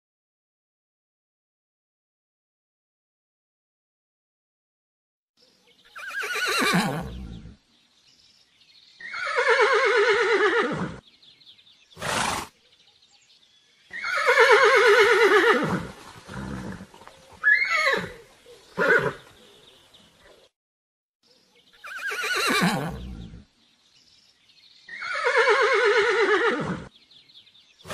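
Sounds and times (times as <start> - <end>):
horse neighing: 6.0 - 7.6, 9.0 - 11.0, 12.0 - 12.5, 13.9 - 18.2, 18.8 - 19.2, 21.8 - 23.4, 24.9 - 26.9.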